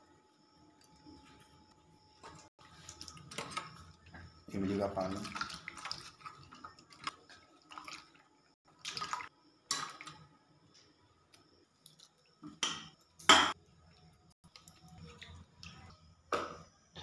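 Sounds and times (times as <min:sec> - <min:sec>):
water splashing in steel bowl: 0:02.6 - 0:10.2.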